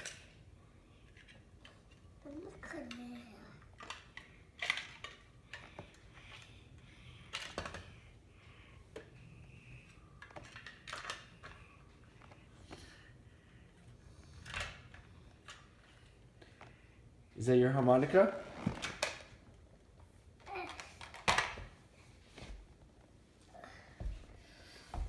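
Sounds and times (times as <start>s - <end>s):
plastic toys clicking and tapping: 0.0s - 0.4s, 1.0s - 6.6s, 7.2s - 8.0s, 9.8s - 12.4s, 20.4s - 21.6s.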